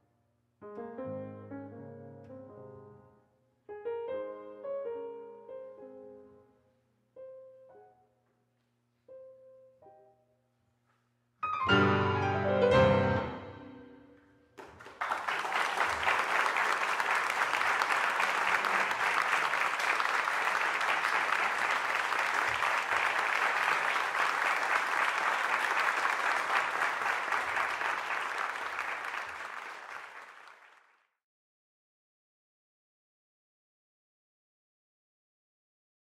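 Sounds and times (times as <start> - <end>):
audience applauding: 14.6 - 31.1.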